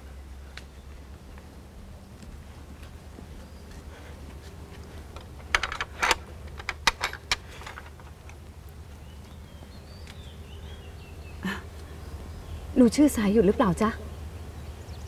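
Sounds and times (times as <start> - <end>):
sharp clicks and light knocks: 4.8 - 8.5.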